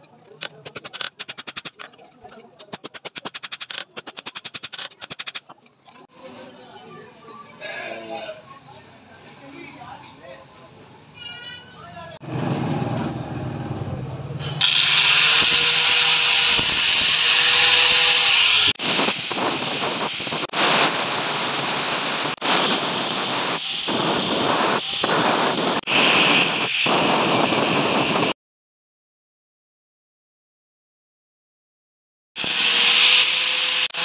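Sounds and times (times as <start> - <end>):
angle grinder grinding steel: 0.0 - 6.6, 14.6 - 28.2, 32.4 - 34.0.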